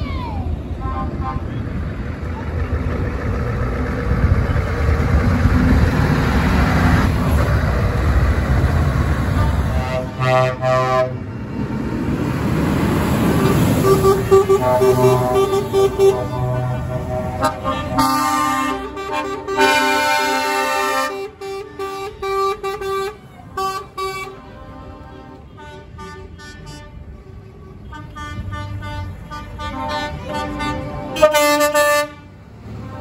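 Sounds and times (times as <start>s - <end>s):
diesel engines running: 0.0s - 33.0s
truck air horns blasting: 0.8s - 1.8s, 9.3s - 11.3s, 13.4s - 33.0s.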